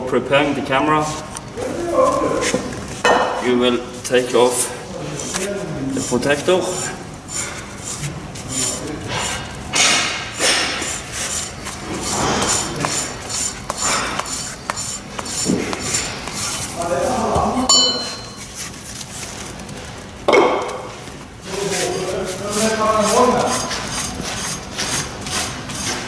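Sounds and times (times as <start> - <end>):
metal ringing: 17.7 - 18.4.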